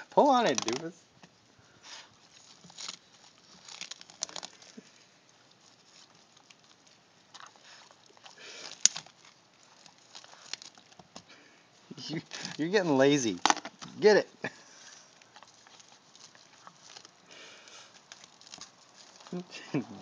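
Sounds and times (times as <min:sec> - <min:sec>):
rubber coating crinkling and tearing: 0:00.0 - 0:20.0
dog chewing: 0:01.7 - 0:11.4, 0:14.6 - 0:19.4.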